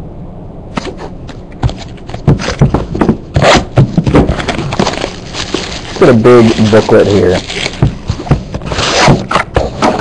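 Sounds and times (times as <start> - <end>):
packaging torn open and crinkling: 4.3 - 7.8, 8.7 - 9.4.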